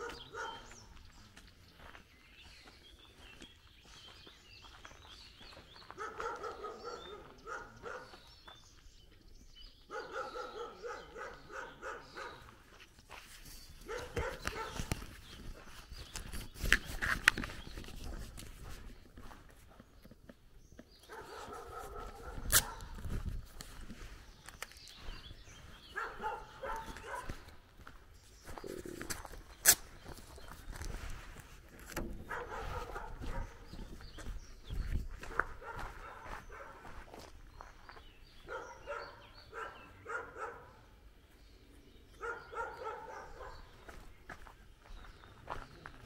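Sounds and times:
dog barking: 0.0 - 0.8, 5.9 - 8.3, 9.8 - 12.6, 13.8 - 14.9, 21.0 - 23.0, 25.9 - 27.5, 32.2 - 33.9, 35.2 - 37.0, 38.4 - 40.8, 42.2 - 43.8.

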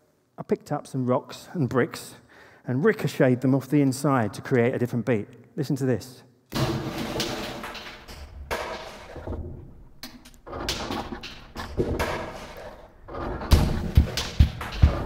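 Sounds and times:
deep regular drum beat: 13.3 - 15.0.

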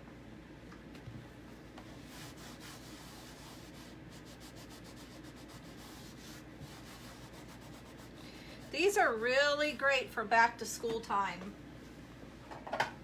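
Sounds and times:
cloth wiping chalkboard: 1.8 - 9.1.

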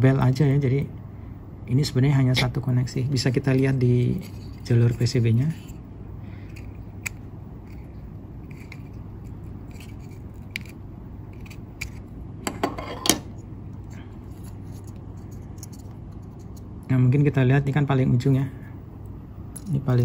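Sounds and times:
steady low hum: 0.0 - 20.0
clicks and scrapes of circuit board: 6.5 - 12.0.

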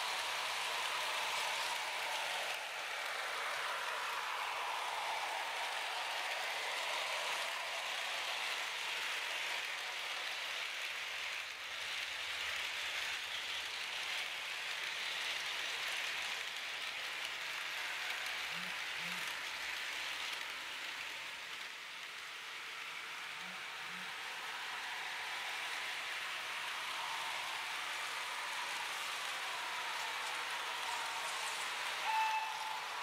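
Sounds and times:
model train wheels on rails: 0.0 - 33.0.

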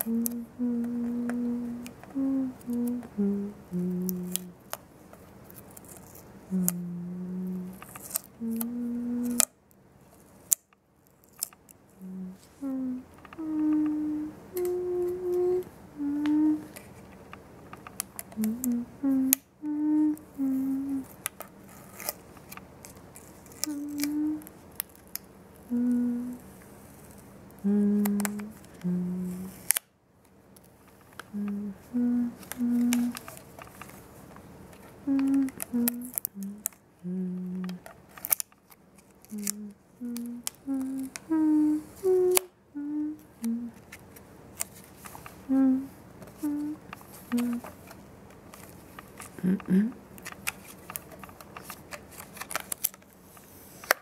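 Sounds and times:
person humming a slow tune: 0.0 - 4.6, 6.4 - 9.6, 12.0 - 16.9, 18.2 - 21.2, 23.5 - 24.6, 25.6 - 26.6, 27.5 - 29.7, 31.2 - 33.4, 35.0 - 37.9, 39.3 - 43.8, 45.4 - 47.7, 49.3 - 50.0.

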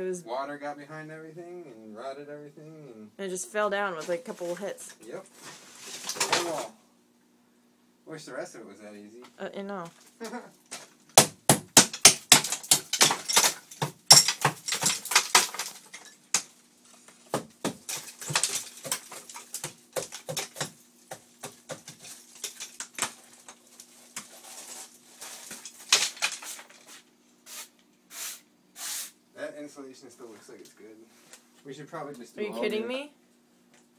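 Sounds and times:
faint steady hum: 0.0 - 33.9
broken tile debris clattering: 5.8 - 6.6, 12.0 - 16.2, 17.8 - 20.7, 21.8 - 23.6, 25.3 - 26.9.

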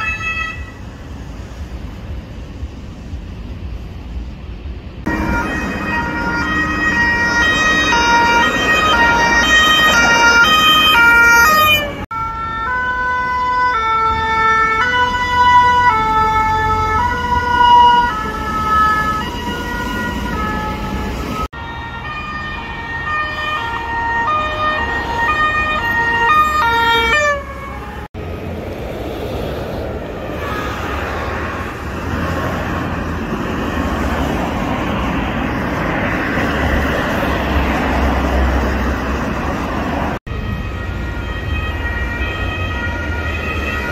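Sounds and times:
two-tone emergency sirens: 0.0 - 0.9, 5.0 - 28.2, 30.3 - 43.9
road traffic: 0.0 - 43.9.

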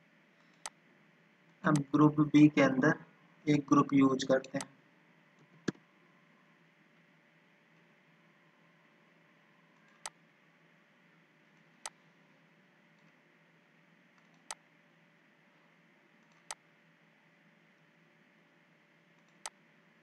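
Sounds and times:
faint room hiss: 0.0 - 20.0
computer mouse clicks: 0.4 - 0.8, 14.2 - 14.6, 16.2 - 16.6, 19.2 - 19.6.

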